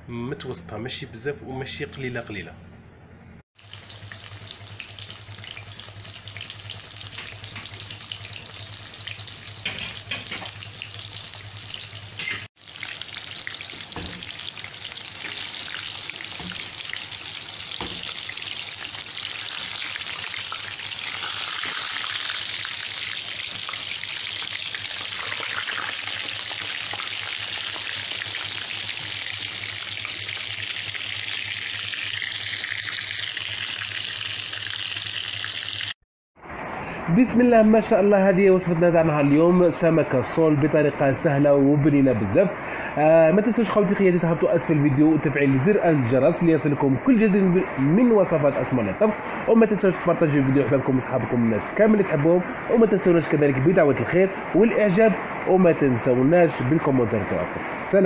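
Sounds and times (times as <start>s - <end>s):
fish frying in oil: 3.6s - 36.0s.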